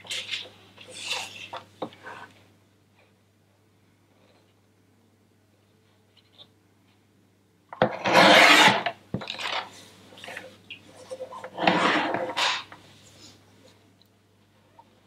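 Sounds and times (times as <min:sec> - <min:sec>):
sheet scraping on trimmer: 0:08.0 - 0:08.9, 0:11.6 - 0:12.7.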